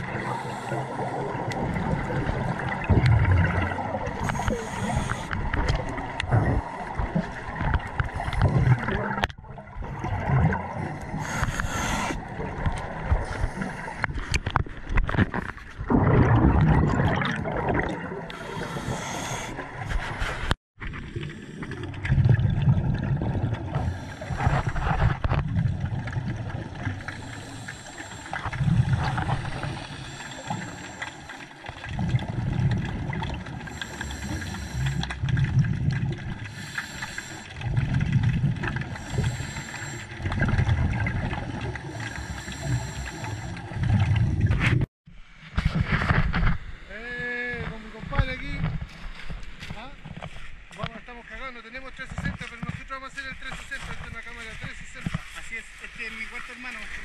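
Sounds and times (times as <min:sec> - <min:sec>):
gurgling exhaled bubbles: 0:00.0 - 0:44.9
regulator hiss on inhalation: 0:04.2 - 0:05.4, 0:11.1 - 0:12.2, 0:18.3 - 0:19.6, 0:27.2 - 0:28.4, 0:33.7 - 0:35.1, 0:36.5 - 0:37.5, 0:39.0 - 0:40.2, 0:42.0 - 0:43.6.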